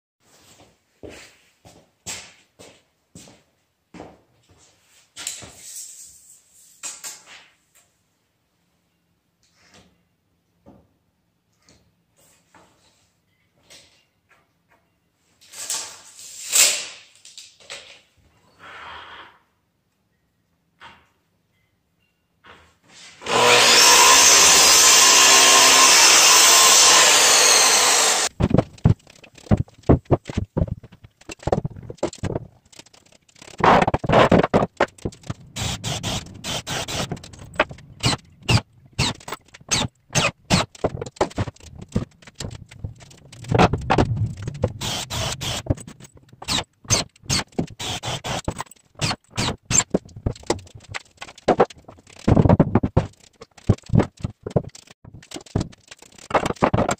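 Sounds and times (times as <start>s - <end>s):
cordless drill bursts: 23.2s - 28.3s, 35.6s - 40.7s, 46.4s - 49.8s
miter saw cutting wood: 23.2s - 28.3s, 32.9s - 56.9s.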